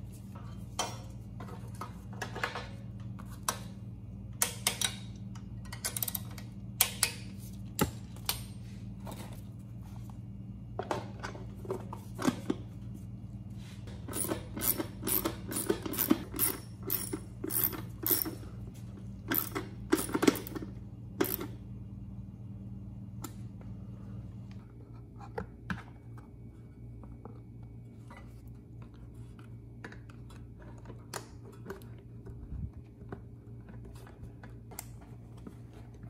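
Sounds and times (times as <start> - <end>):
steady low hum: 0.0 - 36.0
tools and parts clinking: 14.0 - 18.5, 19.2 - 21.5.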